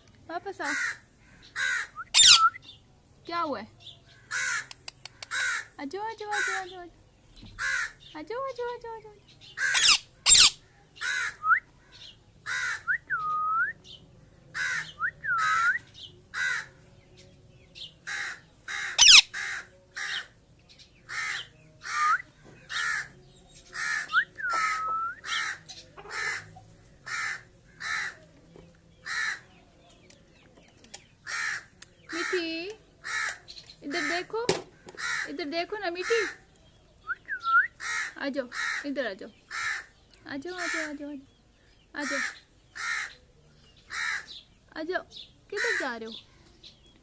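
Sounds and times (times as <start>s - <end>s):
parakeet screeching: 1.6s - 2.5s, 9.6s - 11.4s, 18.1s - 20.2s.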